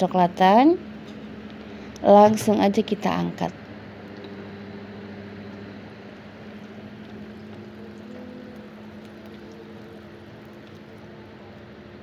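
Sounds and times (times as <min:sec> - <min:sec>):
steady low hum: 0:00.0 - 0:12.0
hot oil sizzling: 0:06.4 - 0:11.3.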